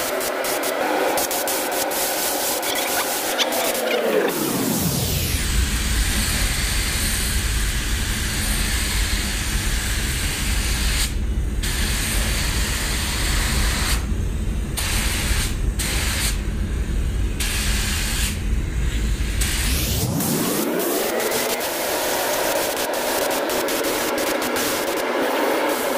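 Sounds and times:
spray gun hissing: 0.0s - 3.9s, 20.8s - 25.9s.

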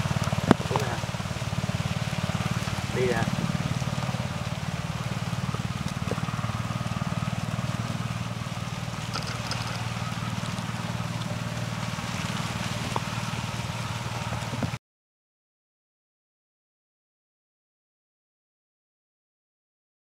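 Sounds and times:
engine thrumming: 0.0s - 14.8s.

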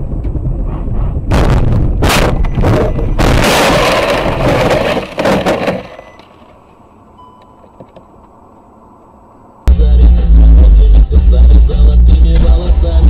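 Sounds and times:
car crash impact: 1.3s - 6.6s.

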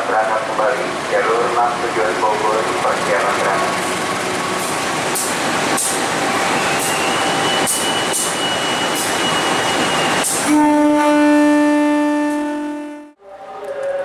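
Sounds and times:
locomotive passing: 0.0s - 12.4s
train wheels clicking over rail joints: 1.7s - 6.1s
loud train horn blast: 10.4s - 13.2s.

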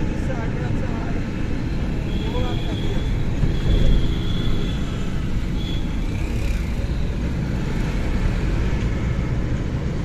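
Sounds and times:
road and engine rumble: 0.0s - 10.0s.

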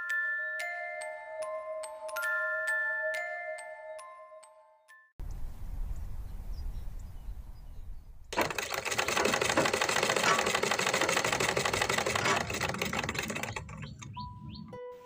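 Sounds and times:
sewing machine needle clatter: 8.3s - 14.7s.

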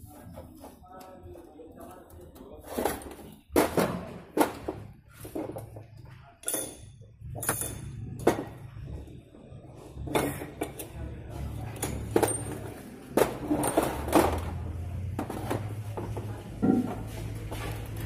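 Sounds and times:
metal parts clinking: 6.4s - 8.0s.

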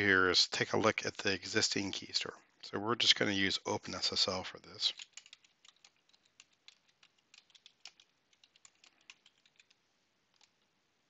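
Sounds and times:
keyboard typing: 4.9s - 10.7s.

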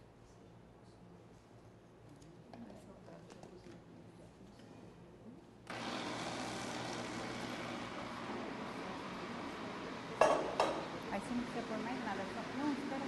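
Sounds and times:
blender running: 5.7s - 13.0s.

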